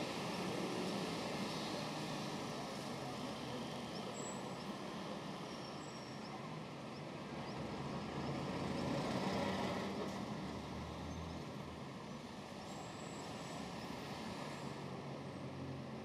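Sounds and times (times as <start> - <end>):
road traffic passing: 6.4 - 16.0.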